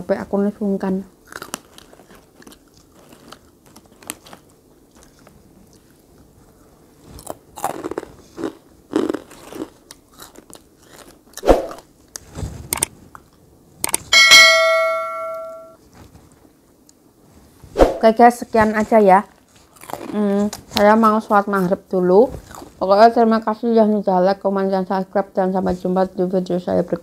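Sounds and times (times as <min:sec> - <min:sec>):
chewing and biting: 0:01.2 - 0:14.0, 0:19.4 - 0:21.1, 0:22.4 - 0:22.8
ringing metallic strike: 0:14.2 - 0:15.8.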